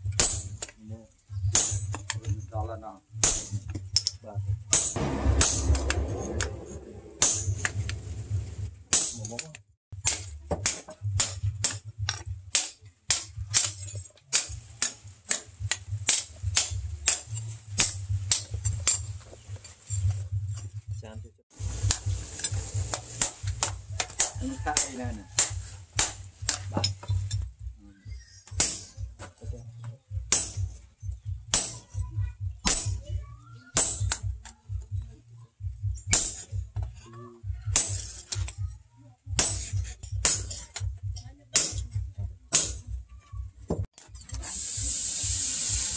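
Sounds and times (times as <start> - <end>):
sledgehammer clanking on metal: 3.2 - 8.2, 39.4 - 40.9
low hum: 5.0 - 8.9
low regular pulsing: 5.0 - 8.9.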